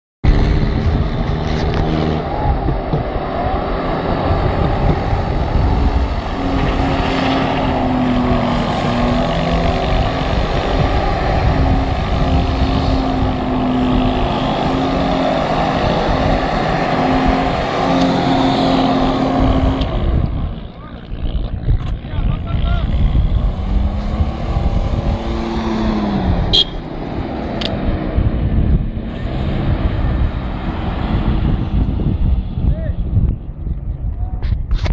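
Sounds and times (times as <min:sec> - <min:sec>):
suv engine revving hard: 0:03.2 - 0:20.5, 0:23.0 - 0:28.3.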